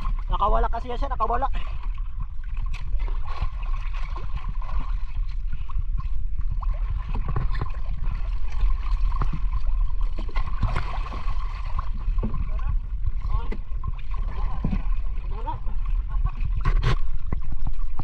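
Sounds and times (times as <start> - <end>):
low rumble: 0.0 - 18.0
sea water sloshing and gurgling: 0.0 - 18.0
small clicks and splashes: 1.8 - 12.6.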